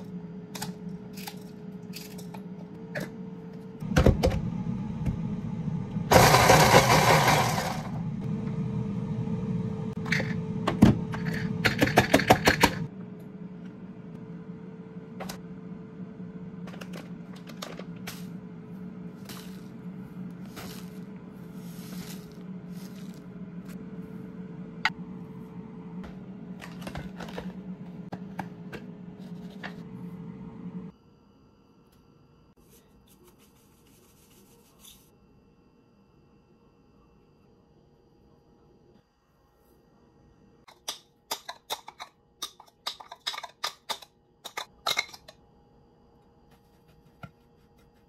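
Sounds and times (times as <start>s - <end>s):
steady low hum: 7.6s - 33.0s.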